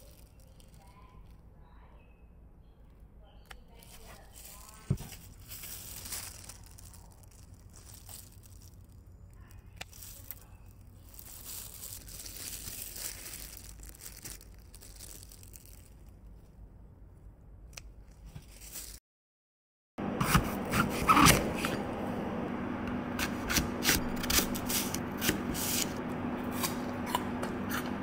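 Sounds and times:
soft rustling of leaves: 0.0 - 1.9, 3.5 - 16.7, 18.0 - 19.0
scissors snipping seedlings: 23.2 - 28.0.

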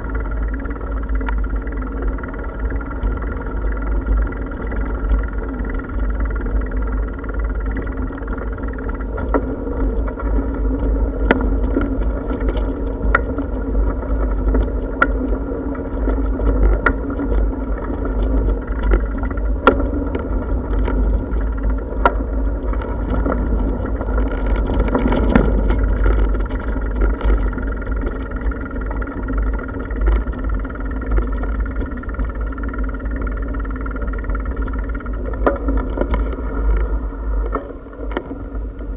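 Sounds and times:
bicycle rumbling over brick paving: 0.0 - 38.9
wheels knocking over paving: 0.0 - 38.9.

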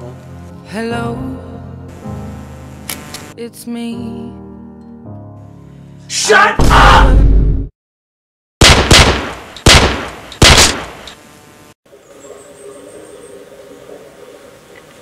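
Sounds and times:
loud bangs: 8.6 - 11.0
low outdoor background: 8.6 - 15.0.

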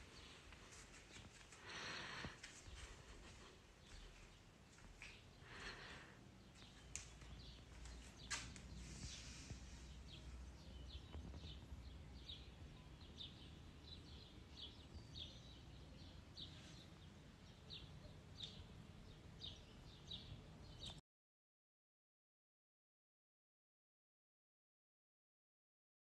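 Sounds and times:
faint bird chirps: 3.8 - 21.0.

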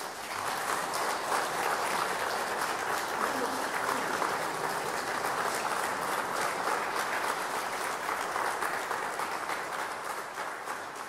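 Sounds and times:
audience clapping: 0.0 - 11.0.

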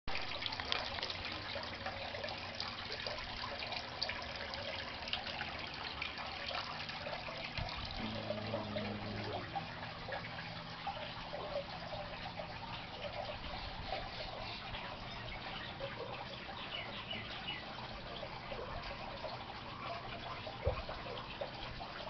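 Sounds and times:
water trickling into aquarium: 0.1 - 22.0
bubbles popping: 7.5 - 10.3.

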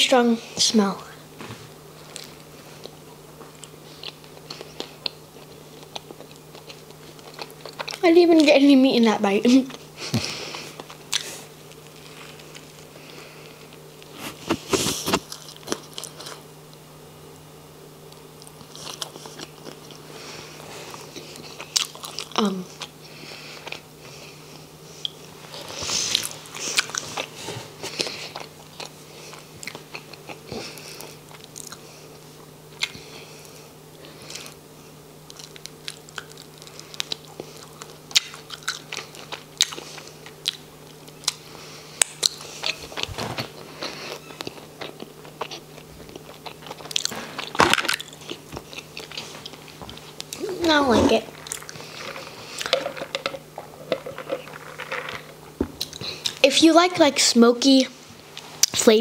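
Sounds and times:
biting and chewing crunches: 2.1 - 8.0, 20.8 - 23.0, 25.0 - 31.9, 35.2 - 56.4.

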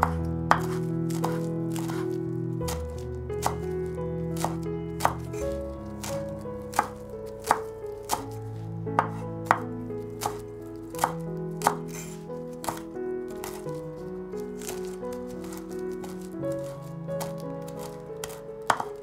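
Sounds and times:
knife chopping on cutting board: 0.0 - 2.0, 6.7 - 8.3, 9.0 - 9.6, 11.0 - 12.8, 17.2 - 19.0
background music with held notes: 0.0 - 19.0.

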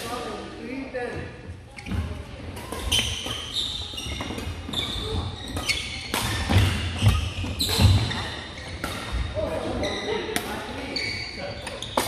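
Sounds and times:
sneakers squeaking: 1.6 - 12.0
racket striking shuttlecock: 5.5 - 9.2.

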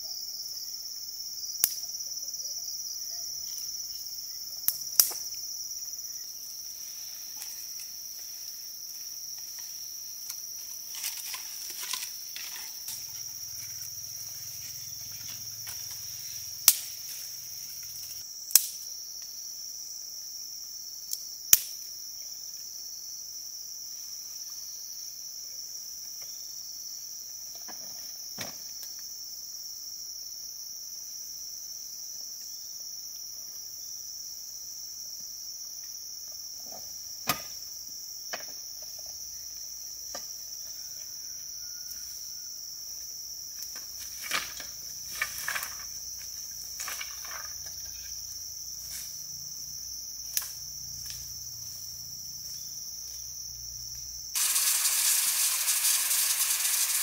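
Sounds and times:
insects chirring: 0.0 - 57.0.

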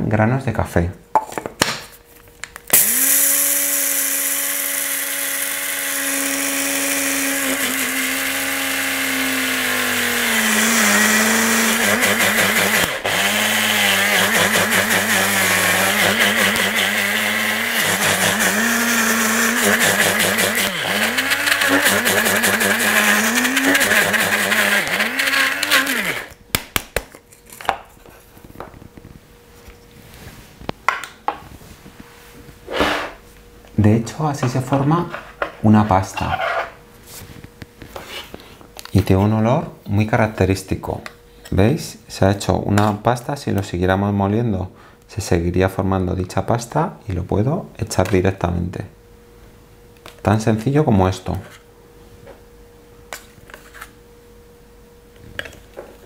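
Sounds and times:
coffee grinder grinding: 2.7 - 26.4.

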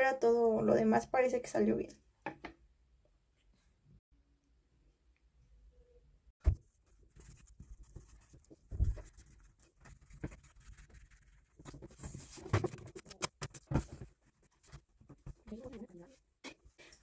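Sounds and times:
paper rustling: 6.5 - 16.2.

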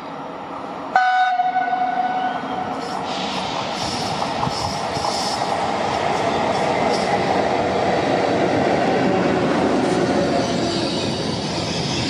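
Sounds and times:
approaching electric train rumble: 0.0 - 12.0
train horn: 0.9 - 2.6
hiss: 2.7 - 5.7.

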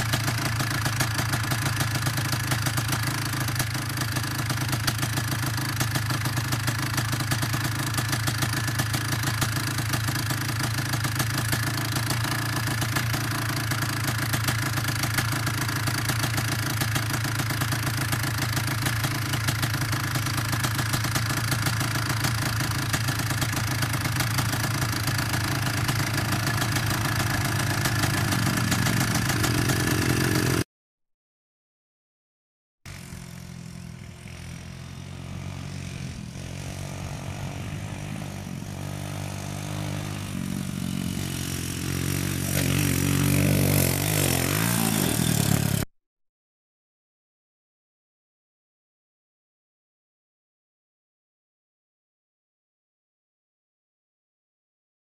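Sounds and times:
small engine idling: 0.0 - 30.6, 32.9 - 45.9.

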